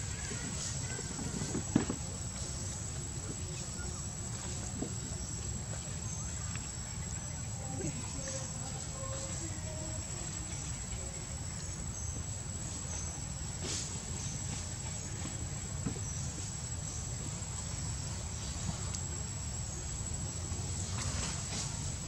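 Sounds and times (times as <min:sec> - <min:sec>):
constant low rumble: 0:00.0 - 0:22.0
insects trilling: 0:00.0 - 0:22.0.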